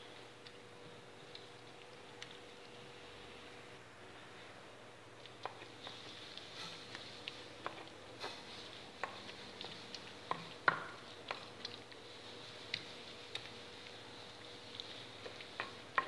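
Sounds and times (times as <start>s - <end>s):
soft squishing: 0.0s - 16.0s
clicks and taps on stone mortar: 10.3s - 11.5s, 15.3s - 16.0s.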